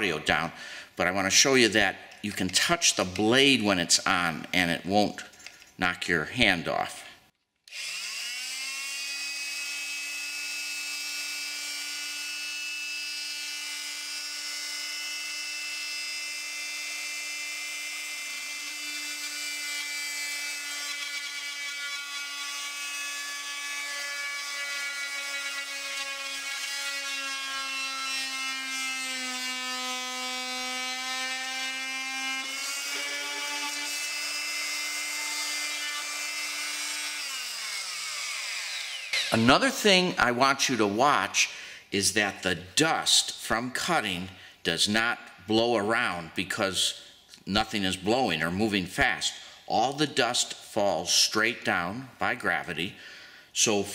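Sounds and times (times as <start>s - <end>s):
oscillating multi-tool buzzing: 7.7s - 39.5s.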